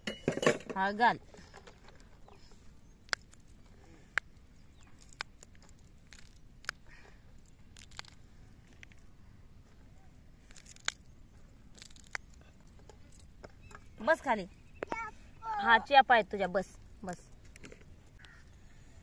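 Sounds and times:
chilli stems snapping: 2.3 - 9.1, 10.0 - 13.9, 17.0 - 18.4.

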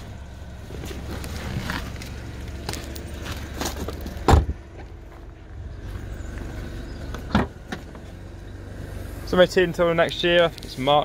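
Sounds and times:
car engine idling: 0.0 - 11.0
car door slamming: 4.2 - 4.6, 7.2 - 8.0.

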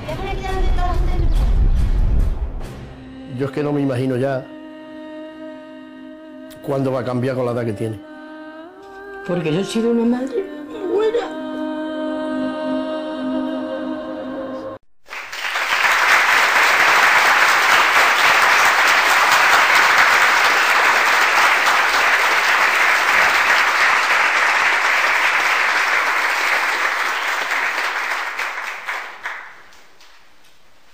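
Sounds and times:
soft music: 2.6 - 14.8
crowd applauding: 15.0 - 30.2.

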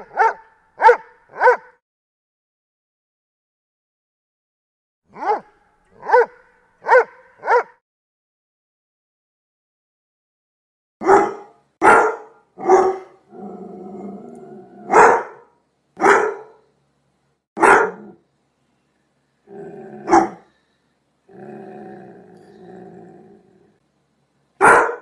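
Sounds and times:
dog barking deeply: 0.0 - 1.8, 5.1 - 7.8, 11.0 - 13.4, 14.7 - 16.6, 17.6 - 18.2, 19.8 - 20.4, 24.6 - 25.0
dog growling low: 13.3 - 14.9, 19.5 - 20.4, 21.3 - 23.8.

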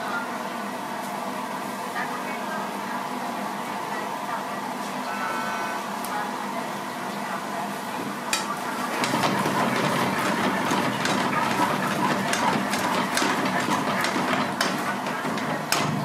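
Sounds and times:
gas burner roar: 7.4 - 16.0.

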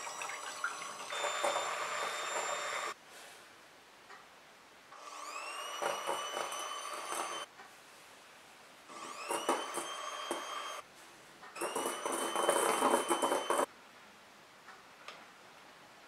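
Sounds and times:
electric hand mixer whirring: 0.0 - 3.0, 5.0 - 7.5, 8.9 - 10.8, 11.6 - 13.7.

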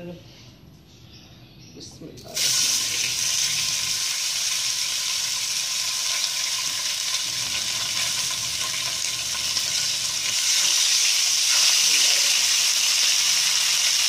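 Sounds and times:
fish sizzling in hot oil: 2.3 - 14.0.

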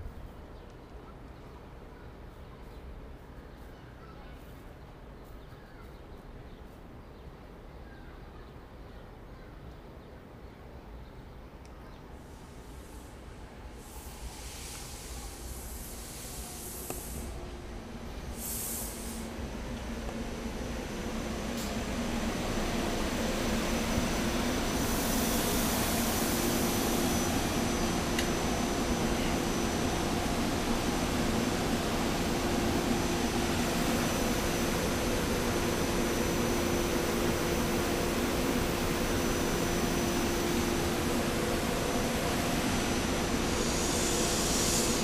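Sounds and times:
faint bird chirps: 0.6 - 12.1
train hiss: 12.0 - 45.0.

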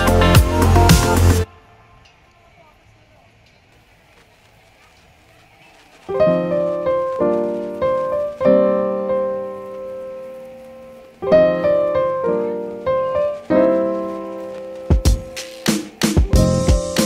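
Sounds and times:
piano chords ringing: 6.1 - 17.0.

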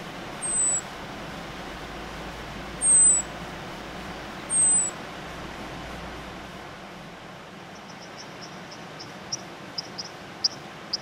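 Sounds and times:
running river water: 0.0 - 11.0
small bird whistled calls: 0.4 - 0.9, 2.8 - 3.3, 4.5 - 5.0.

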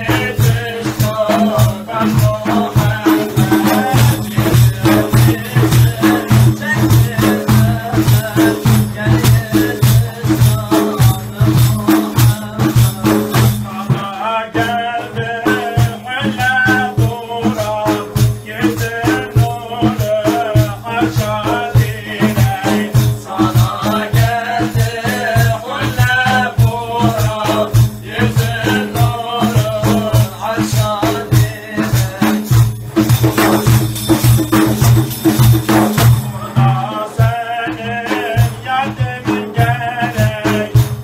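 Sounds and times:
man singing a hymn: 0.0 - 32.7, 36.3 - 41.0
frame drums beating: 0.0 - 41.0
drum rings rattling: 30.6 - 36.9.

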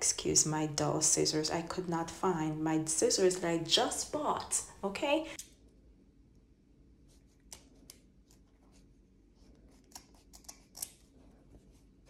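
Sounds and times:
scissors snipping fabric: 9.8 - 11.0.

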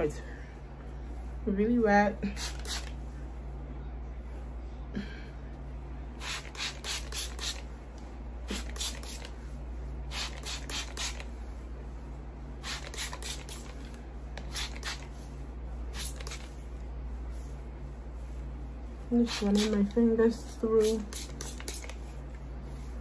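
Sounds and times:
spray bottle squirting: 2.4 - 2.9, 6.2 - 7.6, 8.5 - 9.3, 10.1 - 11.2, 12.6 - 13.7, 14.4 - 15.1, 15.9 - 16.5, 19.2 - 19.8, 20.8 - 22.0.

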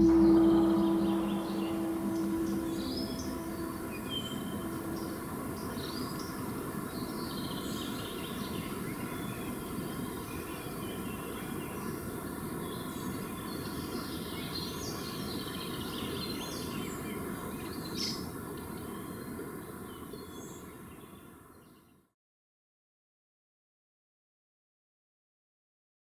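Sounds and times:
birds chirping: 0.0 - 11.6
outdoor background noise: 0.0 - 22.1.

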